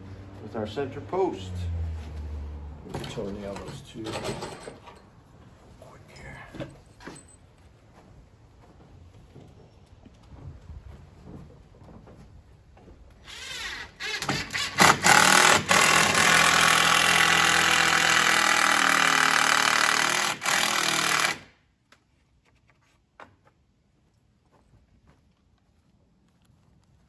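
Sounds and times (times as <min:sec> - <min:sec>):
impact driver driving screw: 0:13.3 - 0:21.5.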